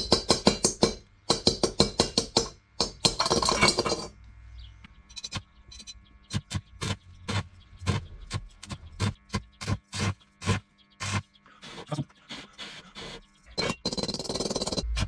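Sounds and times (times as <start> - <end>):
welder crackling pulses: 6.3 - 15.0.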